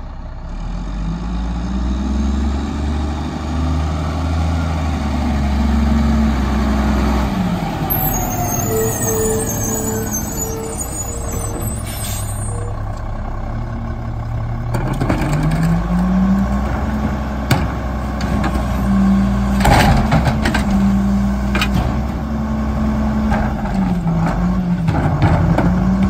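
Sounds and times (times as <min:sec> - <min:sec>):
diesel engine idling and revving: 0:00.0 - 0:26.0
hydraulics running: 0:07.5 - 0:13.0
backup alarm beeping: 0:07.9 - 0:12.7.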